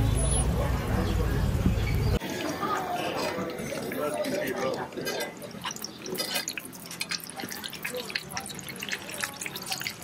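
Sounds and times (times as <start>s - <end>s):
hot oil sizzling and popping: 3.2s - 10.0s.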